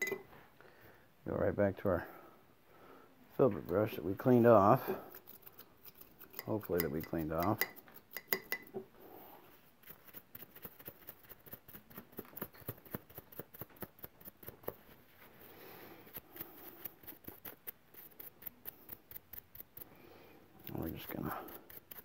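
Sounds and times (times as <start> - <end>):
light clicks and taps of brush: 5.9 - 8.7.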